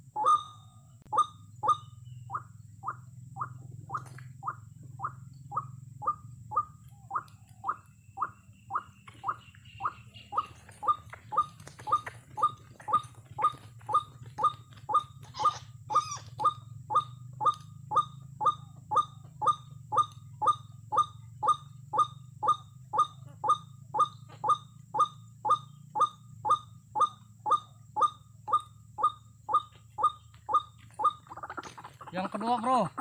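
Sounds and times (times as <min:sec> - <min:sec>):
waterhen calling: 0:29.0 - 0:33.0.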